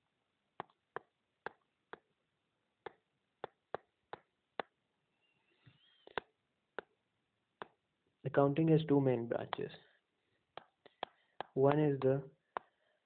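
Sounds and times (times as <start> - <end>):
pen tapping on touchscreen: 0.6 - 2.1, 2.8 - 4.8, 9.5 - 9.7, 10.6 - 12.8.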